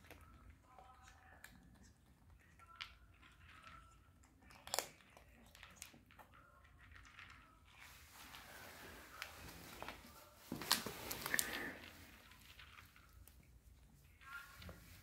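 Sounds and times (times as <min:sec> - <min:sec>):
cat crunching dry food: 0:00.0 - 0:08.4, 0:10.6 - 0:14.7.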